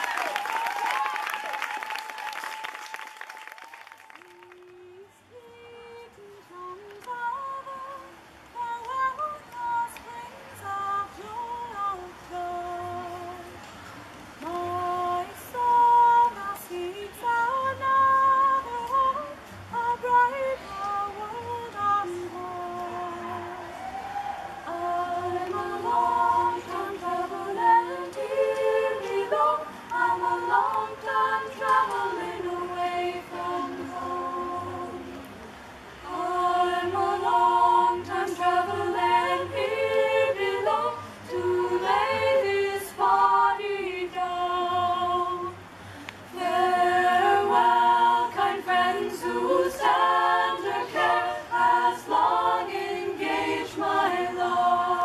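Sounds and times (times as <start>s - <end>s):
women singing a cappella: 4.1s - 55.0s.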